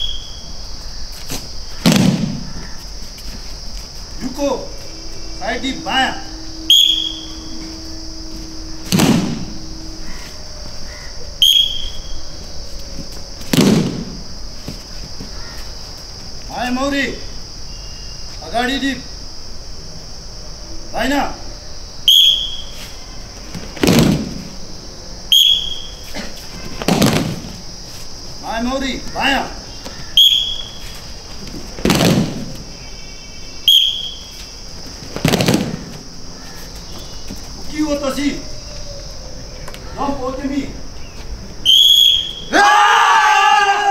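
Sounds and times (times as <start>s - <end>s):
bodies crashing onto mats: 1.3s - 2.6s, 8.9s - 9.5s, 13.1s - 15.4s, 23.4s - 24.6s, 26.4s - 27.6s, 31.3s - 32.6s, 34.8s - 36.1s
short high whistle blast: 4.8s - 10.3s, 11.4s - 12.3s, 22.1s - 22.9s, 25.3s - 26.1s, 30.2s - 30.8s, 33.7s - 34.4s, 41.7s - 42.5s.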